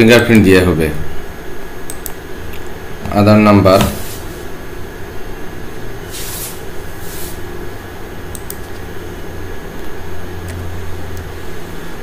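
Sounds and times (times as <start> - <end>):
short hisses: 6.1 - 7.4.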